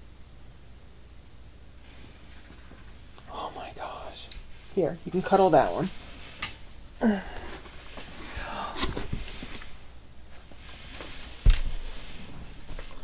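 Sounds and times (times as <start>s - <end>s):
packaging rustling and crinkling: 7.3s - 9.8s.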